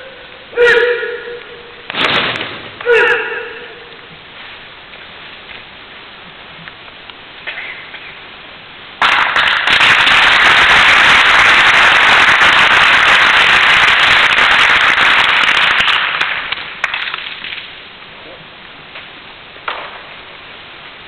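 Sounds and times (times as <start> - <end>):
audience applause: 9.0 - 17.3.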